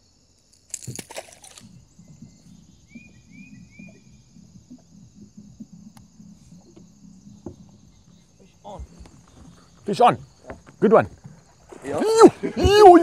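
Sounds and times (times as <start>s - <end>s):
low steady hum: 0.9s - 13.0s
bird chirping: 1.3s - 11.6s.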